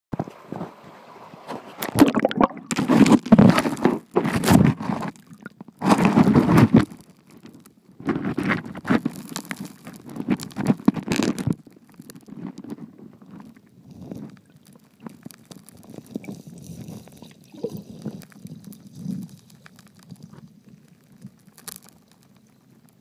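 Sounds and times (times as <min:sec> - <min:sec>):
underwater gurgling water: 0:00.2 - 0:23.0
camera scraping on gravel: 0:02.7 - 0:06.9.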